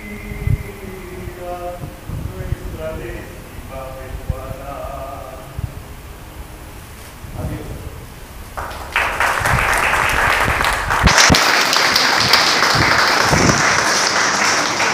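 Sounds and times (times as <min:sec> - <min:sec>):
audience applauding: 0:08.6 - 0:14.9.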